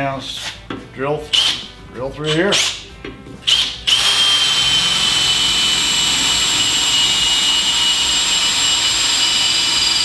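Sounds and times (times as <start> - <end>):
drill boring through metal: 3.5 - 10.0.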